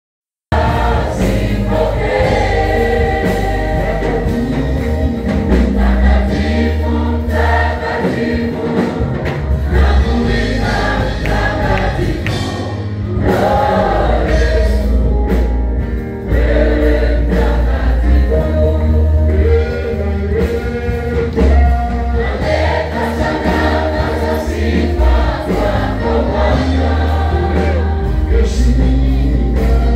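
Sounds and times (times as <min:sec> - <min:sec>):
beat: 0:00.5 - 0:29.9
choir singing gospel: 0:00.5 - 0:29.9
deep bass line: 0:00.5 - 0:29.9.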